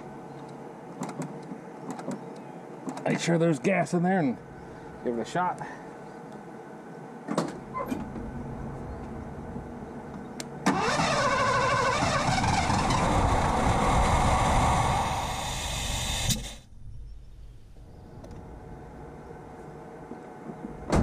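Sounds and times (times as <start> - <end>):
car engine starting and revving: 10.6 - 15.9.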